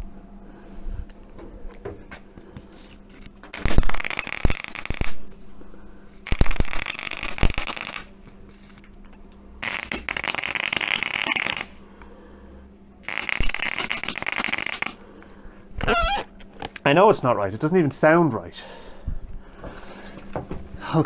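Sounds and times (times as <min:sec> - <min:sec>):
welder arc crackling: 0:03.5 - 0:08.2, 0:09.6 - 0:11.8, 0:13.0 - 0:15.0.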